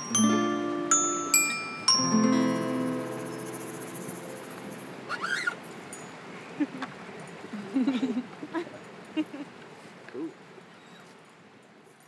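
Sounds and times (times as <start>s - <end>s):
xylophone: 0.0s - 5.0s
acoustic guitar: 0.0s - 5.9s.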